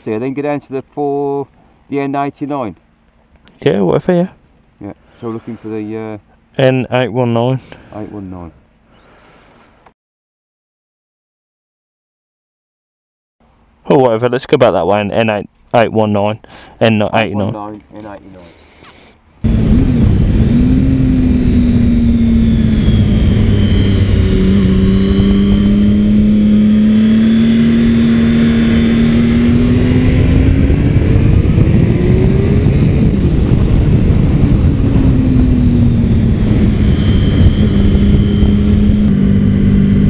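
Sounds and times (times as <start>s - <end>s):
motorcycle engine running: 19.4s - 40.0s
wind rumble on microphone: 19.4s - 40.0s.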